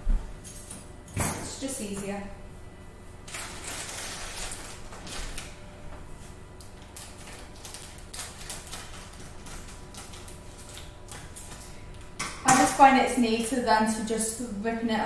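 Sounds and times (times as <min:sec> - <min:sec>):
plastic packet crinkling: 0:03.3 - 0:05.5, 0:06.6 - 0:11.6.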